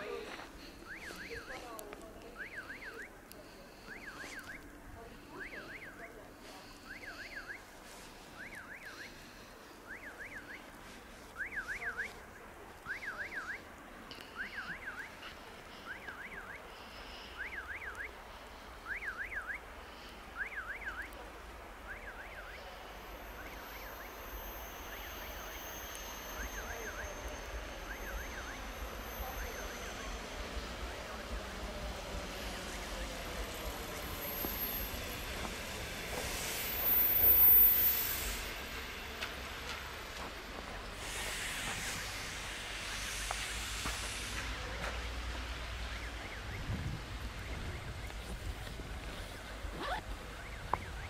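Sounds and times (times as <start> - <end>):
electric train rumble and hiss: 22.6 - 45.9.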